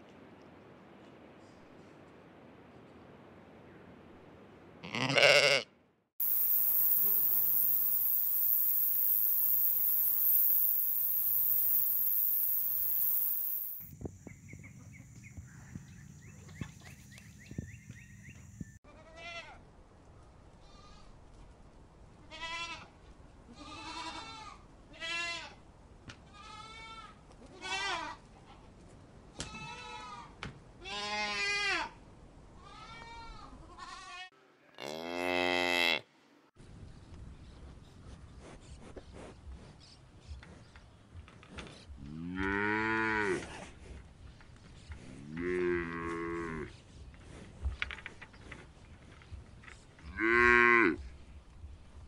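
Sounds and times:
goats and sheep bleating: 4.8 - 5.7
high-pitched hiss: 6.2 - 14.2.

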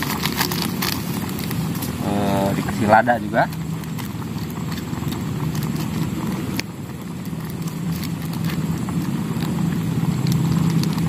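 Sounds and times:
sachet tearing crinkle: 0.0 - 2.8
gas burner rumble: 0.0 - 11.0.

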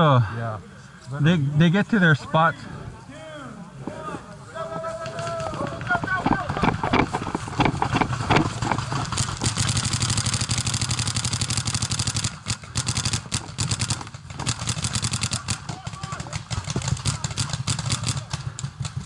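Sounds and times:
paintball markers firing volleys: 5.0 - 19.0.

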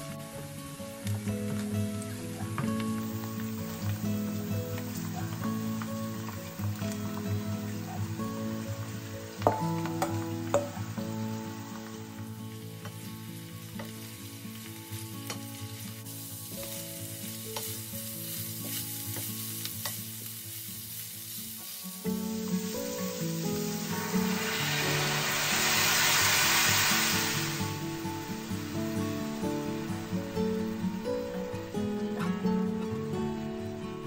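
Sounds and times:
chicken sizzling in a pan: 0.0 - 32.6.

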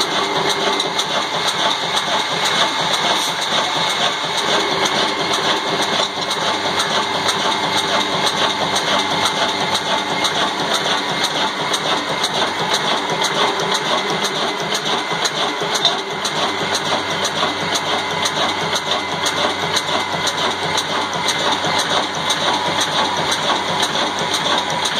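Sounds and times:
stationary engine running steadily: 0.0 - 24.9.

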